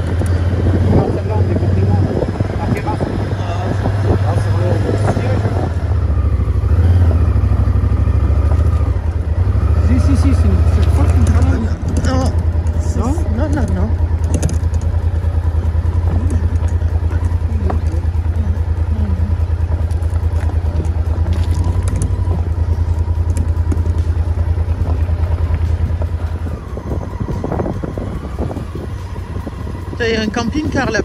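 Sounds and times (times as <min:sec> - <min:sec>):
motorhome engine droning: 0:00.0 - 0:31.0.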